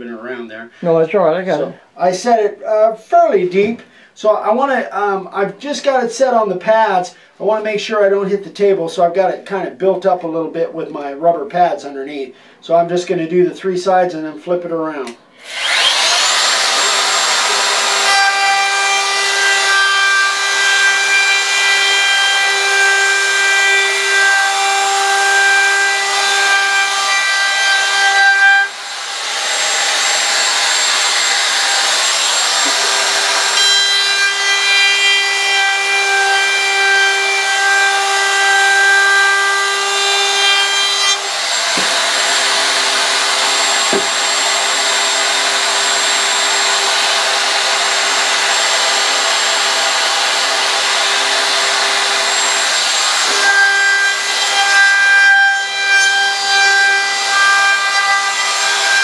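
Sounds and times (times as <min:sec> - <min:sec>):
router cutting wood: 0:15.0 - 0:59.0
router motor whine: 0:15.4 - 0:59.0.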